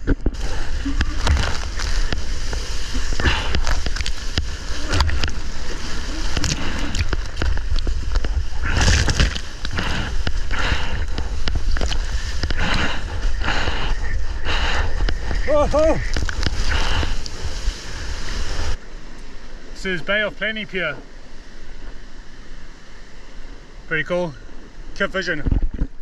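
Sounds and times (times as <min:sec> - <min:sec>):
water splashing against surfboard: 0:00.0 - 0:18.8
wind rumble on microphone: 0:00.0 - 0:18.8.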